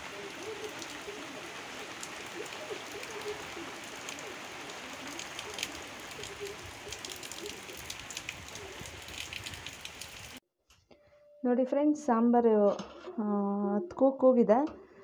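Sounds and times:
rain falling on foliage: 0:00.0 - 0:10.4.

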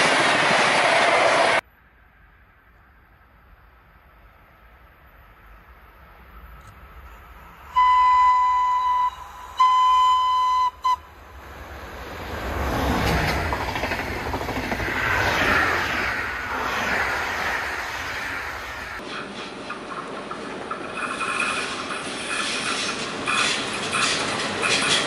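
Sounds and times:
train wheels rumbling on rail: 0:00.0 - 0:01.7, 0:10.8 - 0:25.0
locomotive horn blasts: 0:07.8 - 0:11.1.

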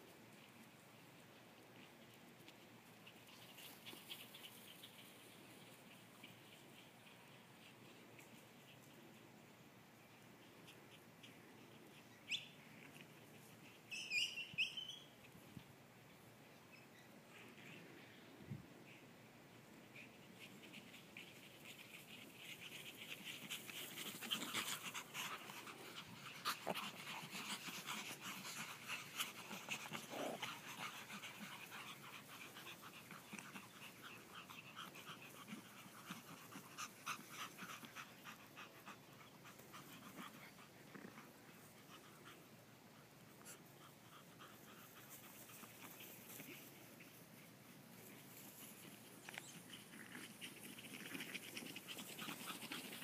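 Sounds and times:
small dogs panting: 0:19.8 - 0:53.0.

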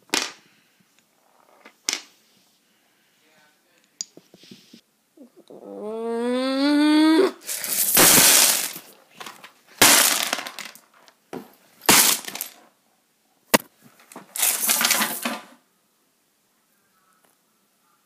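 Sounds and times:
chess pieces clattering: 0:07.5 - 0:08.9, 0:09.8 - 0:10.8, 0:11.9 - 0:12.6, 0:14.4 - 0:15.3.

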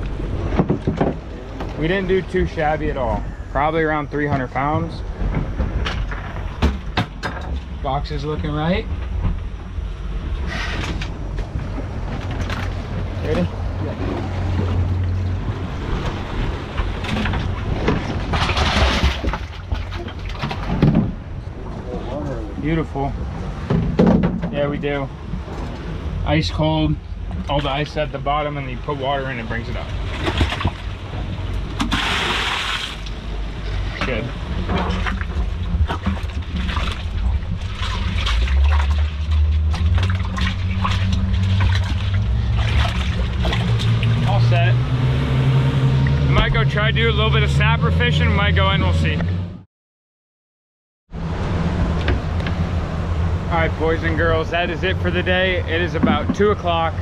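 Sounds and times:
boat engine running: 0:00.0 - 0:49.6, 0:51.1 - 0:57.0
rushing water splash: 0:10.4 - 0:21.9, 0:29.6 - 0:49.1
rattling and knocking: 0:23.6 - 0:24.6.

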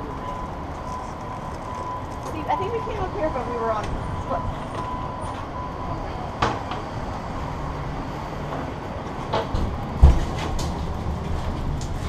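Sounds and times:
bicycle clicks and rattles: 0:09.3 - 0:12.0
heavy thump: 0:09.6 - 0:10.6.

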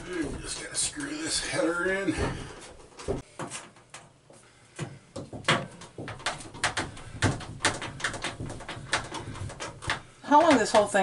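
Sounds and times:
knocks and clicks of door frame: 0:05.2 - 0:10.9.

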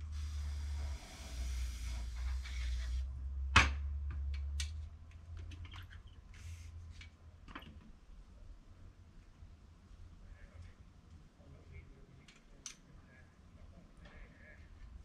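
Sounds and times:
aerosol spray hissing: 0:00.0 - 0:03.1.

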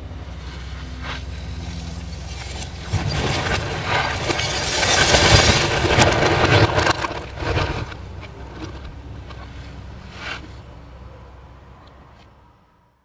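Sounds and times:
diesel engine running: 0:00.0 - 0:11.6
debris crashing: 0:02.1 - 0:08.9
timber splintering: 0:02.2 - 0:08.9
wood cracking: 0:02.2 - 0:09.6.

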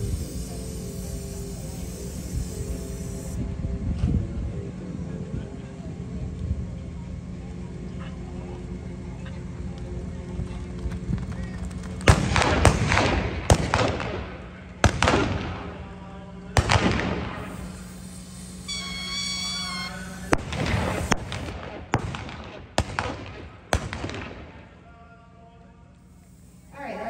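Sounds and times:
high held tone: 0:00.0 - 0:03.6, 0:17.6 - 0:21.3.

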